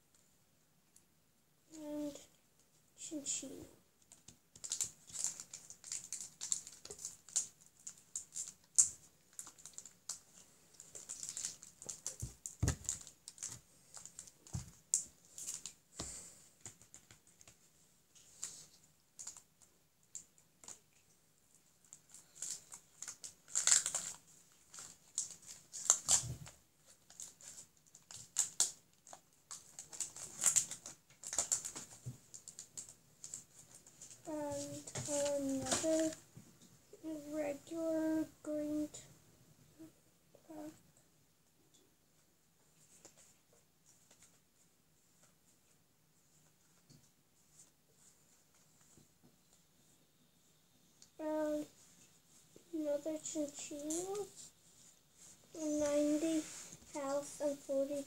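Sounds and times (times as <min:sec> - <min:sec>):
foil wrapper crinkling: 0:04.6 - 0:15.8, 0:18.3 - 0:19.5, 0:21.8 - 0:36.1.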